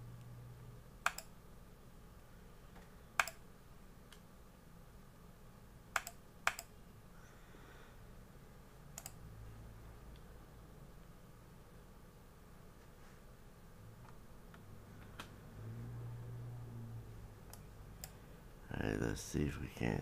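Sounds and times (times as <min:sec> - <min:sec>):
computer control clicks: 0:01.0 - 0:01.3, 0:03.2 - 0:03.4, 0:05.9 - 0:06.7, 0:09.0 - 0:09.2.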